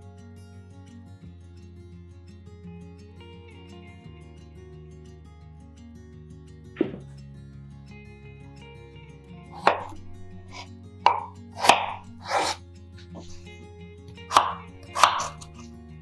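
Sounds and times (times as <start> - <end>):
soft background music: 0.0 - 16.0
knife cutting on a cutting board: 9.6 - 13.6, 14.3 - 15.7.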